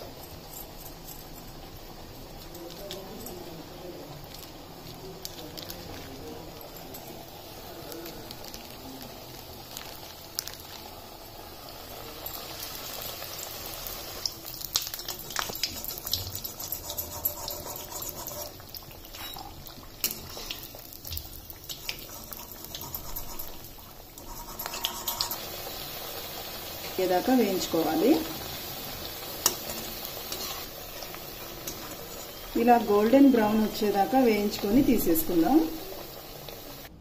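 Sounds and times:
fritters sizzling in hot oil: 0.0s - 37.0s.

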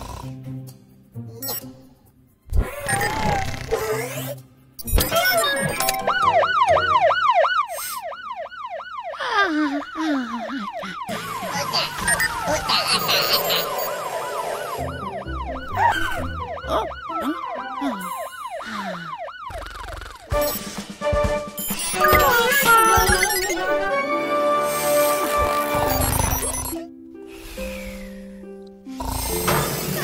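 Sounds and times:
background music: 0.0s - 7.5s, 11.1s - 18.5s, 20.3s - 30.0s
fire truck siren yelp: 5.5s - 20.1s.

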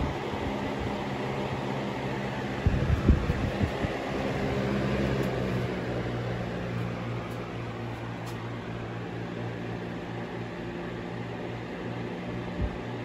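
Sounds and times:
box fan running: 0.0s - 13.0s.

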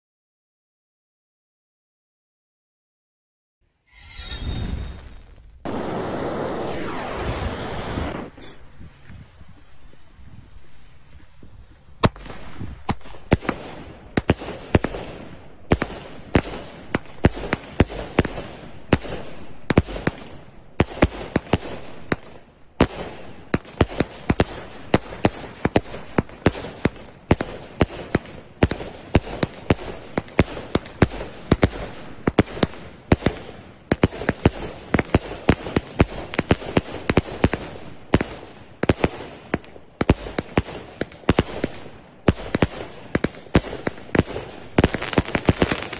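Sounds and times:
firework launch bangs: 3.9s - 8.6s.

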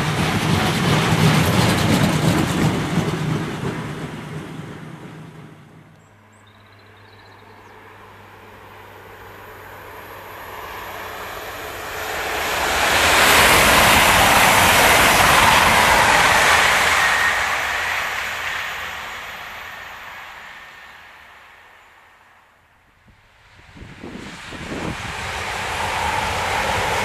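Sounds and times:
diesel train passing at speed: 0.0s - 27.0s
faint bird chirps: 6.0s - 8.3s.

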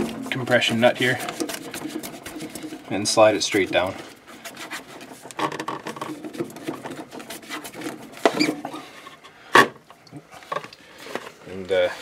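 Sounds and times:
hands scraping and rustling: 0.0s - 9.4s.

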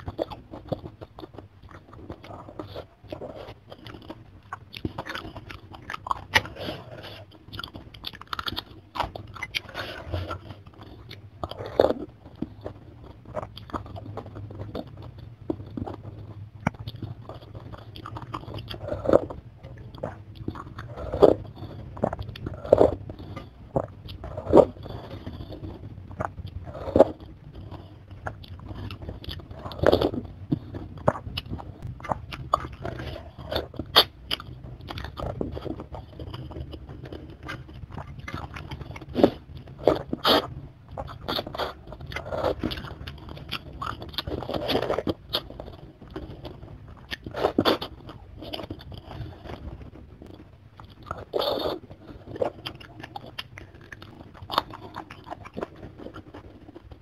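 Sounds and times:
chewing with wet mouth sounds: 0.0s - 57.0s.

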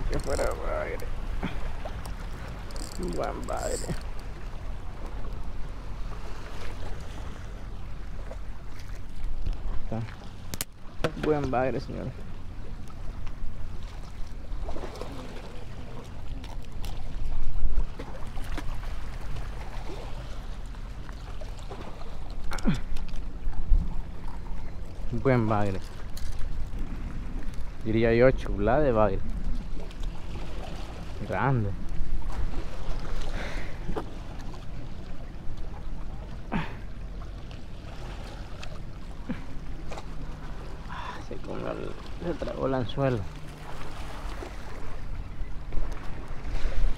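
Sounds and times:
water lapping against rocks: 0.0s - 46.9s
short squeaks: 2.0s - 4.3s
wind rumble on microphone: 16.1s - 20.2s, 22.6s - 35.8s.

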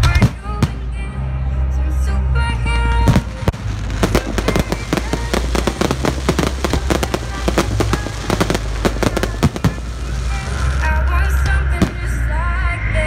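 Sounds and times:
firework bang: 3.1s - 12.2s
fireworks cracking and popping: 3.1s - 12.2s.

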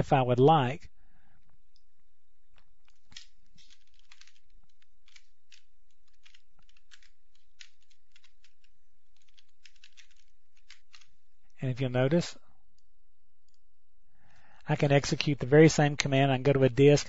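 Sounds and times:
faint steady hum: 0.0s - 17.0s.

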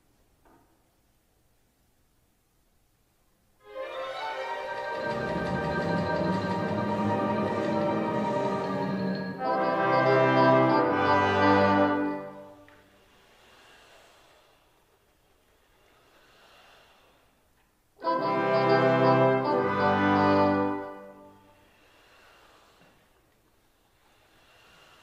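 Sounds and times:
orchestra playing loud chord: 3.7s - 12.5s, 18.0s - 21.3s.

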